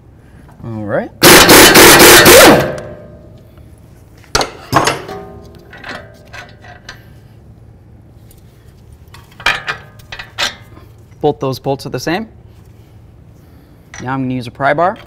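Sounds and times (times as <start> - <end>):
impact wrench hammering: 1.2 - 3.2.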